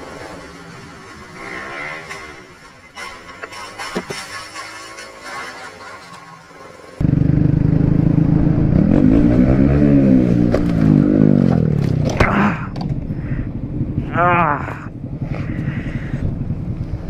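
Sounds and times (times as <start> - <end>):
road noise: 0.0 - 17.0
motorcycle engine revving: 4.3 - 17.0.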